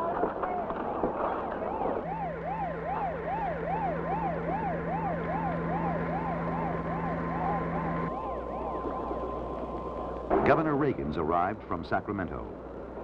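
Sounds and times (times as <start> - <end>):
siren yelping: 1.5 - 10.3
steady low hum: 1.5 - 13.0.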